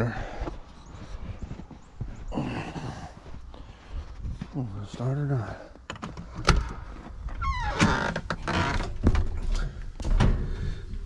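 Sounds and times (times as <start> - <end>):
door squeak: 7.4 - 9.0.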